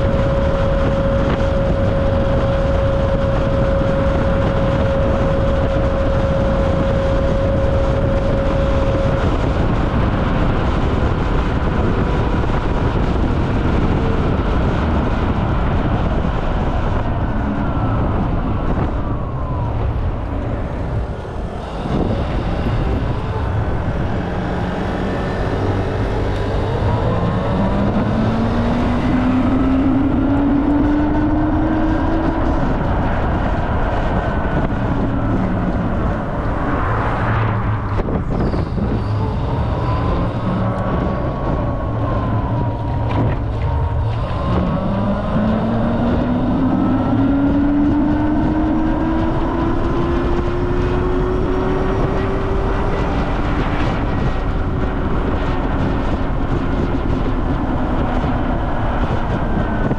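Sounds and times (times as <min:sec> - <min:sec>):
wind and road noise rushing: 0:00.0 - 0:59.9.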